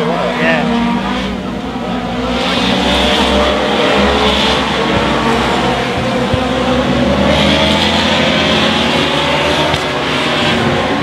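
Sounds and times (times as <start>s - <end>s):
racing motorcycles passing: 0.0s - 11.0s.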